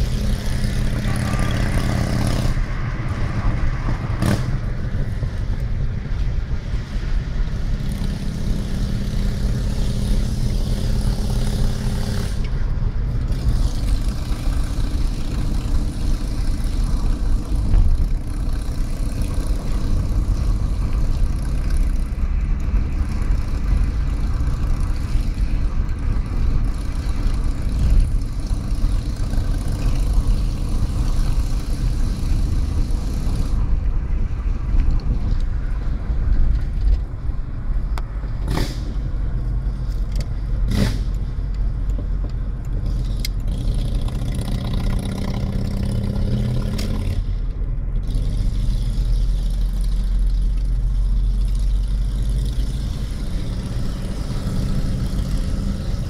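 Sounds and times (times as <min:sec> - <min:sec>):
wind noise: 0:00.0 - 0:43.6
engine hum: 0:00.0 - 0:56.0
vehicle engine and road rumble: 0:00.0 - 0:56.0.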